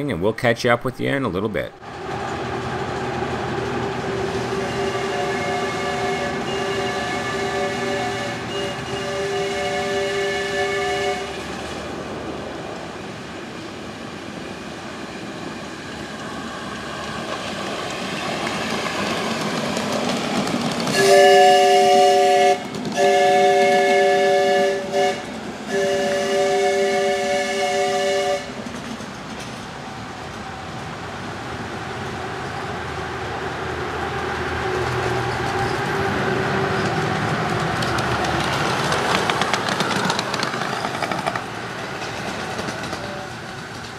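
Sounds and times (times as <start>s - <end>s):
chime steam whistle: 4.6s - 11.3s, 21.0s - 28.5s
train wheels clattering on track: 11.3s - 26.6s, 27.2s - 32.9s, 34.6s - 43.9s.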